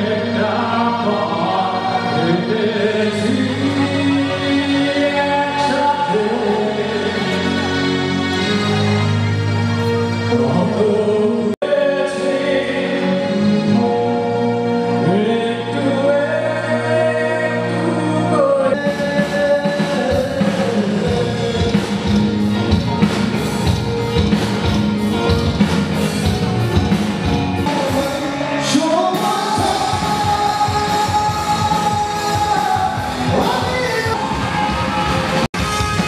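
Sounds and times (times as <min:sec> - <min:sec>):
person singing: 0:00.0 - 0:23.1, 0:27.3 - 0:36.0
steady drum beat: 0:18.8 - 0:28.2, 0:29.1 - 0:36.0.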